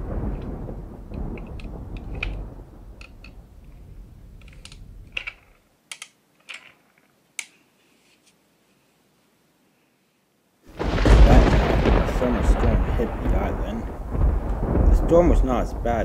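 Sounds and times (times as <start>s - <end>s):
low thunder rumble: 0.0s - 5.4s, 10.7s - 16.0s
wooden toy trains clicking: 4.4s - 7.6s.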